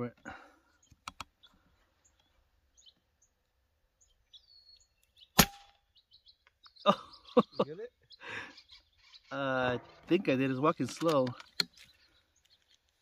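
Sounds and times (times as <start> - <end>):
faint high bird chirps: 0.6 - 10.2
air rifle shot: 5.4 - 5.8.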